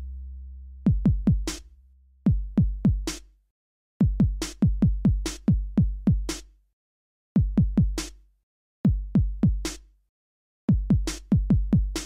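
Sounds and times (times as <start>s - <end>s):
electronic music with drum beat: 10.8s - 12.0s.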